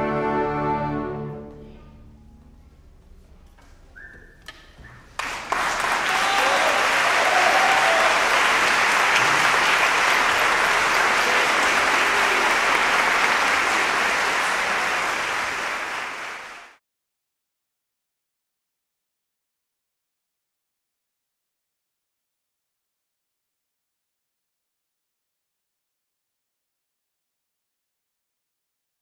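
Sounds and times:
audience applauding: 0:05.0 - 0:16.8.

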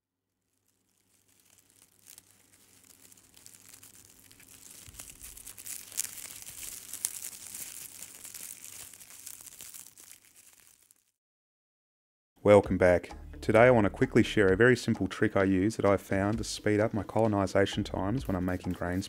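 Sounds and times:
crackling crinkling clicks: 0:00.5 - 0:11.1.

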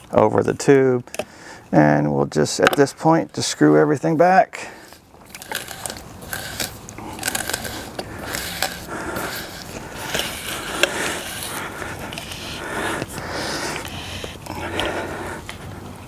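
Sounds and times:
plastic threads scraping and clicking: 0:05.2 - 0:15.0.

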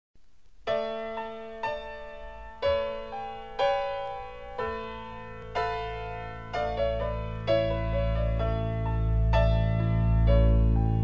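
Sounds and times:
keyboard chords: 0:00.7 - 0:11.0
low steady bass: 0:07.1 - 0:11.0.

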